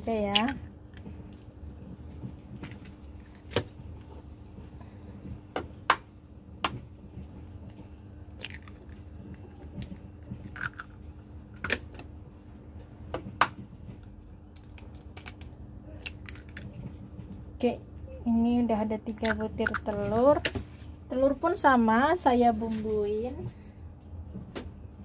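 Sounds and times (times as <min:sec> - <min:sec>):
eggshells cracking against metal: 0:09.9 - 0:12.0, 0:14.5 - 0:16.8.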